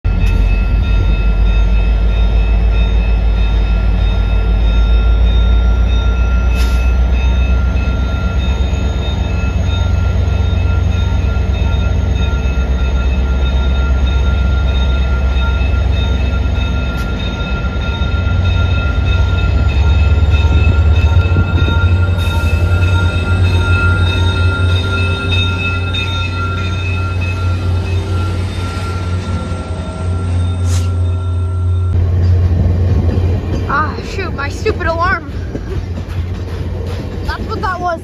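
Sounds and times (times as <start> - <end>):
diesel locomotive engine rumble: 0.0 - 38.0.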